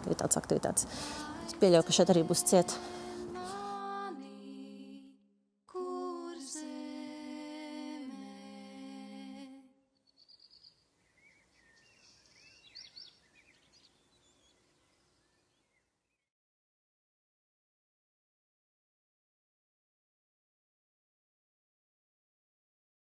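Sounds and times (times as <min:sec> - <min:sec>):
low hiss: 0:00.0 - 0:04.2
faint bird chirps: 0:09.9 - 0:16.3.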